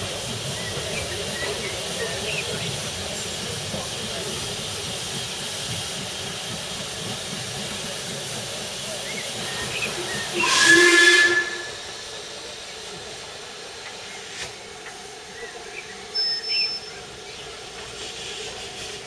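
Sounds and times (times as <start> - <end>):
steam hissing: 0.0 - 19.0
steam locomotive whistle: 9.5 - 12.0.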